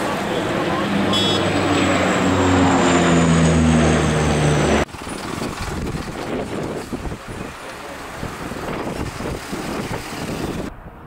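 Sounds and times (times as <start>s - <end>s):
outdoor background noise: 0.0s - 11.0s
turboprop plane droning overhead: 0.0s - 11.0s.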